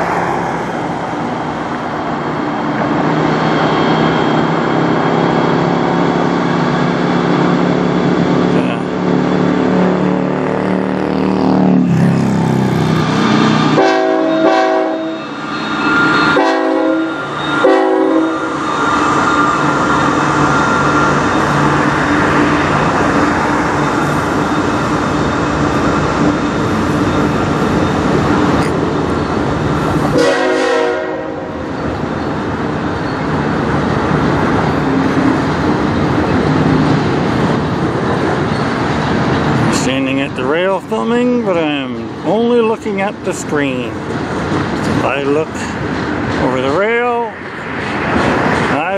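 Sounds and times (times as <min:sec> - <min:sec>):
diesel locomotive engines running: 0:00.0 - 0:48.9
rail cars rolling on rails: 0:00.0 - 0:48.9
train horn blasts: 0:13.7 - 0:18.5, 0:30.1 - 0:31.6.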